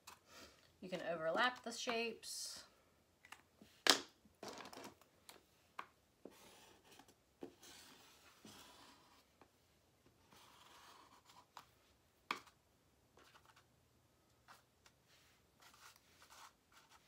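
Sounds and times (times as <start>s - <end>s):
marker scratching on paper: 6.3s - 9.3s, 10.2s - 11.4s, 15.6s - 17.0s.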